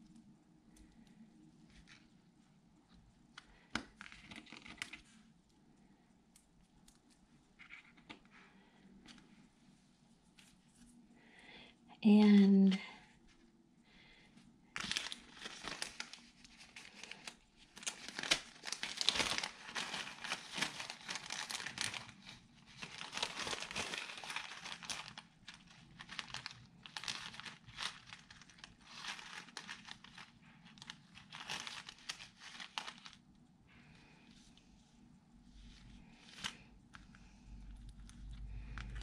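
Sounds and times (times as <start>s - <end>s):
plastic bag crinkling: 14.7s - 33.4s, 35.8s - 39.0s.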